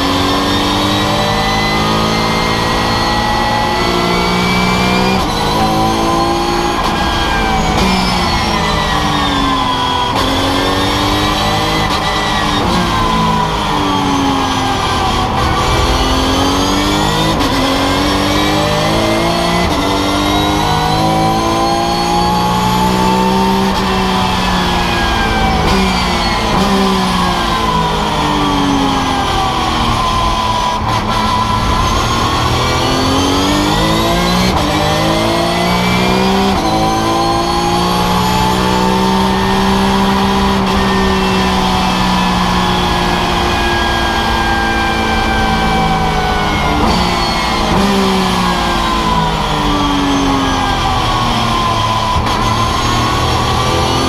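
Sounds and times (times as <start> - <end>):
race car engine climbing through gears: 0.0 - 54.0.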